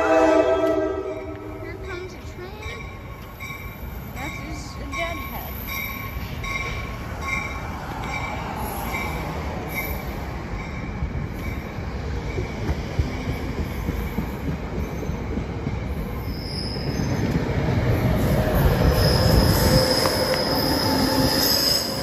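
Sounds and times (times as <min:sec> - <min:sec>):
train rumbling on tracks: 0:00.0 - 0:22.0
high wheel squeal: 0:16.0 - 0:17.4, 0:18.2 - 0:22.0.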